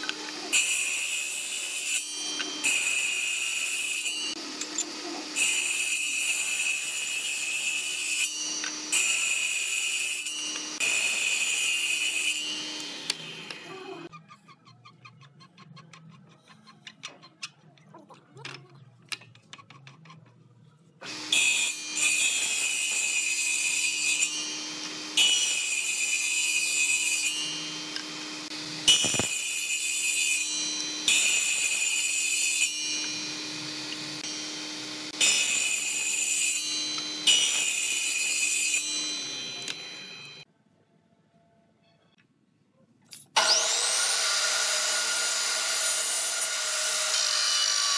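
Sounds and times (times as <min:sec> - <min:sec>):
table saw humming and whining: 0:00.0 - 0:14.1, 0:21.0 - 0:40.4, 0:43.4 - 0:47.9
saw cutting wood: 0:00.0 - 0:14.2, 0:21.0 - 0:40.5, 0:43.4 - 0:47.9.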